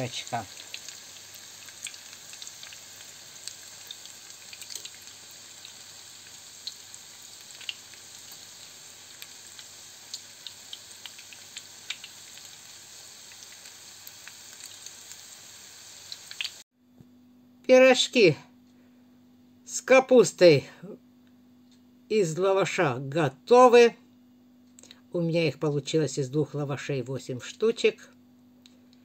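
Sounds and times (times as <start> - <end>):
oil popping and crackling: 0.0 - 16.6
oil sizzling in skillet: 0.0 - 16.7.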